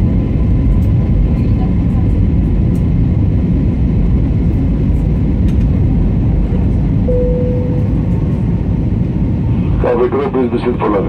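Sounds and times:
jet engines and airflow rumble: 0:00.0 - 0:11.0
short steady tone: 0:07.1 - 0:08.4.

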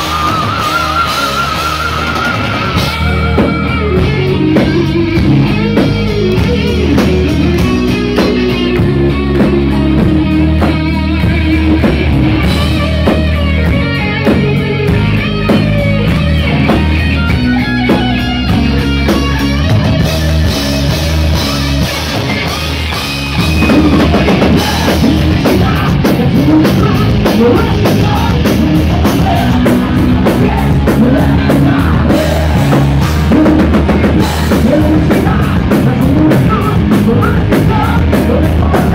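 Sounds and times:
heavy metal band playing live: 0:00.0 - 0:38.9.

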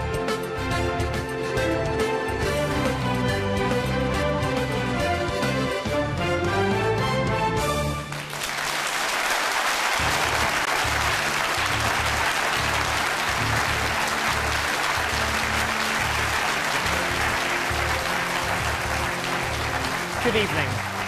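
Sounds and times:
theme music with bass beat: 0:00.0 - 0:08.1, 0:10.0 - 0:21.0
audience applauding: 0:07.9 - 0:21.0.

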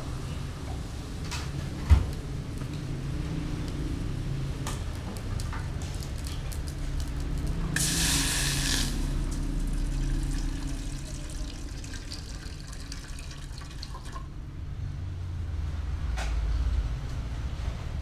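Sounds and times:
low rumble: 0:06.6 - 0:12.2
water pouring into metal pot: 0:07.8 - 0:14.3.

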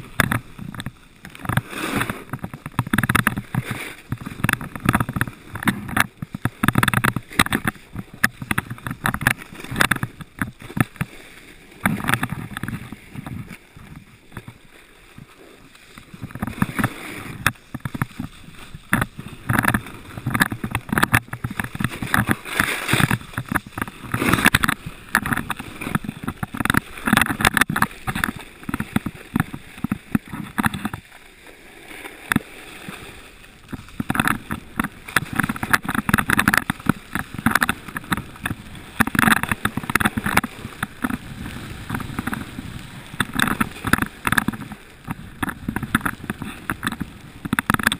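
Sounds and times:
snowboard scraping on snow: 0:01.6 - 0:02.7, 0:14.5 - 0:18.5.

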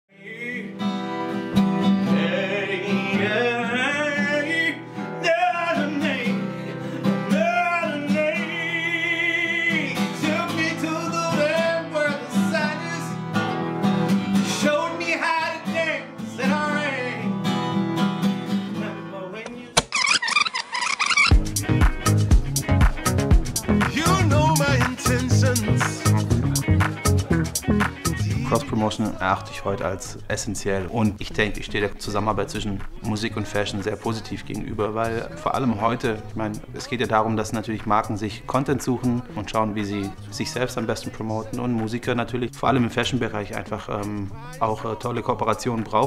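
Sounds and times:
man singing: 0:00.1 - 0:01.2, 0:01.8 - 0:13.2, 0:14.4 - 0:17.3, 0:18.7 - 0:19.8, 0:21.3 - 0:29.8
strummed acoustic guitar: 0:00.2 - 0:19.8.

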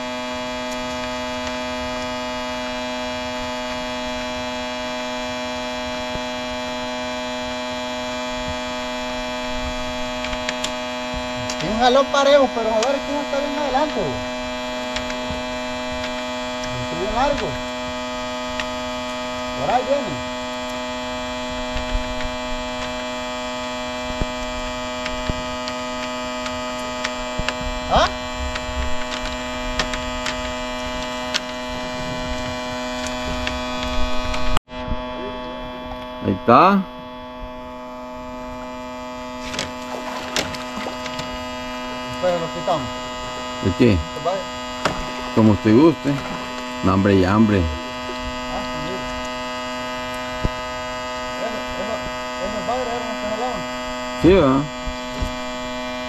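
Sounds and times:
steady hum of held tones: 0:00.0 - 0:56.0.

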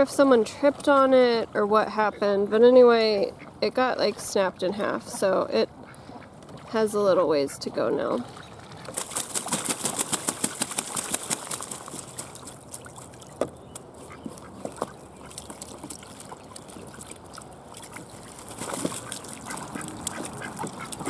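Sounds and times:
water splashing and dripping: 0:08.2 - 0:21.0
ducks quacking: 0:19.0 - 0:21.0.

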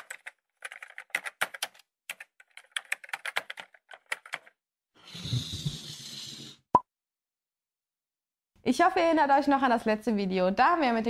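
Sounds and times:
computer keyboard typing: 0:00.0 - 0:04.6.

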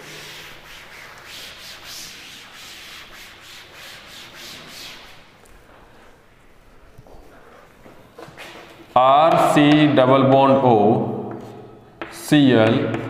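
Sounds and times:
duster rubbing on chalkboard: 0:00.0 - 0:05.3.

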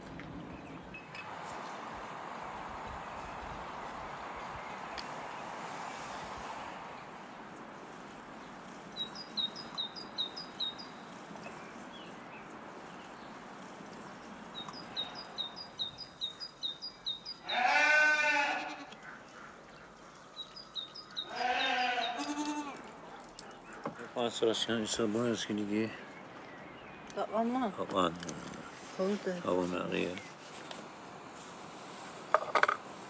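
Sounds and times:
steady outdoor hiss: 0:00.0 - 0:33.0
bird chirping: 0:00.2 - 0:01.8, 0:08.4 - 0:17.8, 0:18.9 - 0:30.4
goat bleating: 0:17.4 - 0:19.0, 0:21.2 - 0:23.0.

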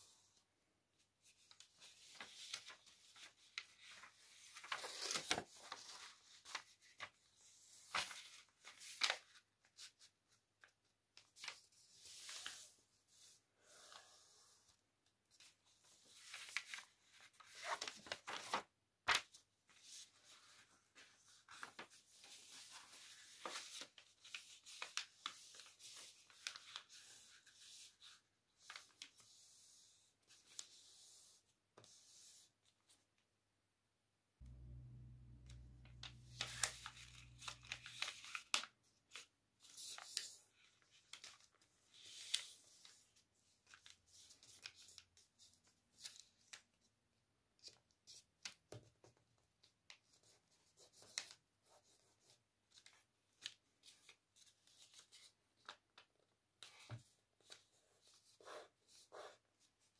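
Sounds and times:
paper rustling and crinkling: 0:01.2 - 0:13.3, 0:15.3 - 0:31.0, 0:34.5 - 0:46.8, 0:52.7 - 0:59.9.

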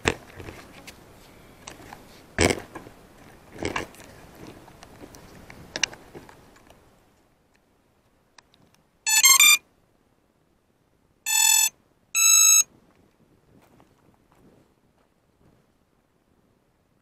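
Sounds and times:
drone motors beeping tones: 0:09.1 - 0:09.6, 0:11.3 - 0:12.6.

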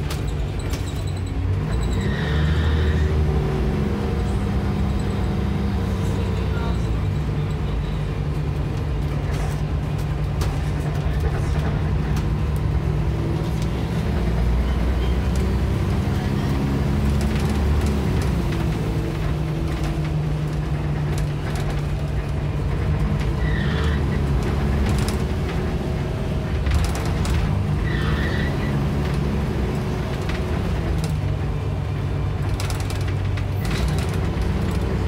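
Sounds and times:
bus engine drone: 0:00.0 - 0:35.0
road noise: 0:00.0 - 0:35.0
interior rattles: 0:16.8 - 0:23.4.

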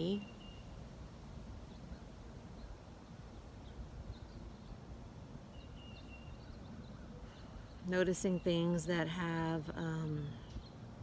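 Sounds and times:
insect chirping: 0:00.0 - 0:08.8.

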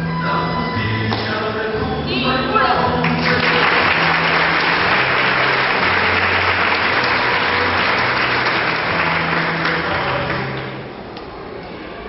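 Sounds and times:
audience applauding: 0:03.0 - 0:10.8.

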